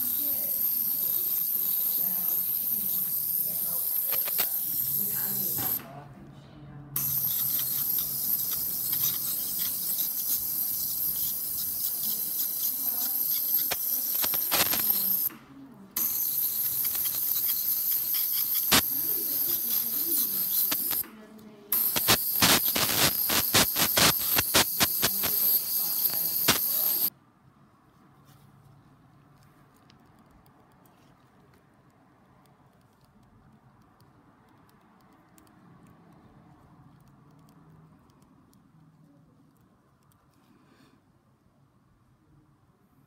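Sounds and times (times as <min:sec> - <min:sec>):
dental scaler hissing: 0:00.0 - 0:05.8, 0:07.0 - 0:15.3, 0:16.0 - 0:21.0, 0:21.7 - 0:27.1
fast sharp clicks: 0:00.1 - 0:05.8, 0:07.0 - 0:15.3, 0:16.0 - 0:21.0, 0:21.7 - 0:27.1.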